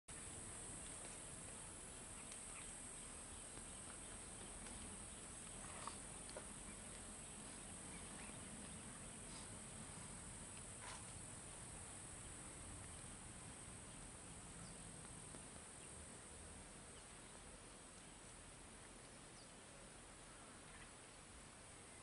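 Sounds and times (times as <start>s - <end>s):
insects droning: 0.1s - 22.0s.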